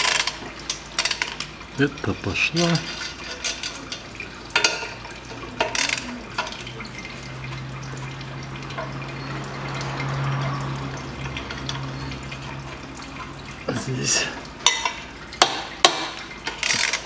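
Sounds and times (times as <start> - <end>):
wrench scraping: 2.6 - 4.1, 16.5 - 17.0
ratchet metal clicks: 16.5 - 17.0.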